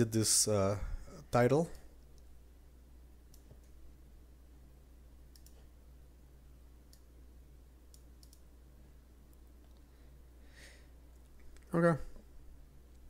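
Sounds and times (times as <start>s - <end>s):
low steady hum: 0.0s - 13.0s
mouse and keyboard clicks: 5.3s - 5.7s, 7.9s - 8.4s.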